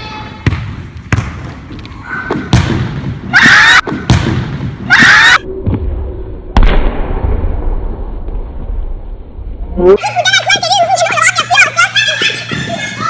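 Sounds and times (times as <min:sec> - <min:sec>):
ball bouncing on wooden floor: 0:00.4 - 0:01.7.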